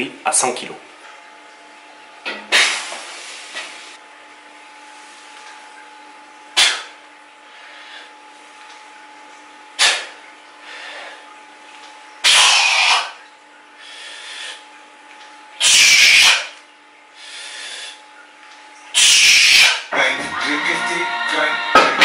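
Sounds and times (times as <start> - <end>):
music: 20.0 - 22.0.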